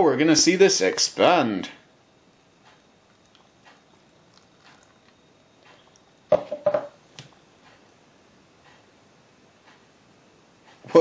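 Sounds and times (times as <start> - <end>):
hollow plastic knocks: 6.3 - 7.0.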